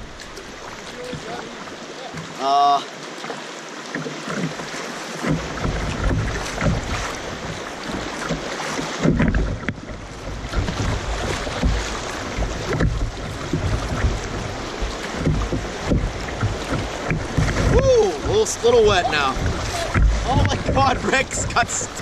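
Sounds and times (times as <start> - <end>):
river rapids rushing and splashing: 0.0 - 22.0
wind buffeting microphone: 9.0 - 22.0.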